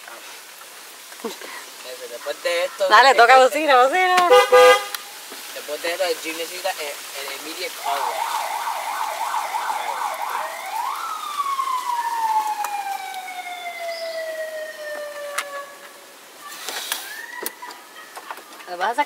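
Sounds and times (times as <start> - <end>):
electronic siren wailing: 7.8 - 16.2.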